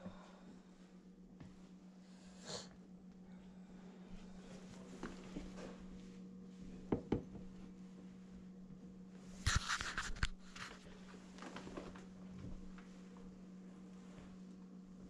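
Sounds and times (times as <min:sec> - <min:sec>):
steady low hum: 0:00.0 - 0:15.0
camera rustling and clicks: 0:09.4 - 0:10.8.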